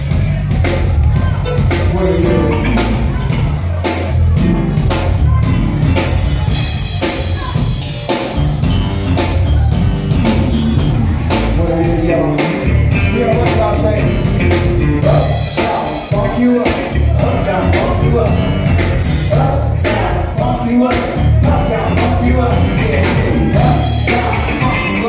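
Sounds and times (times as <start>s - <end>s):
drum kit beat: 0.0s - 25.0s
electric bass guitar line: 0.0s - 25.0s
live band playing: 0.0s - 25.0s.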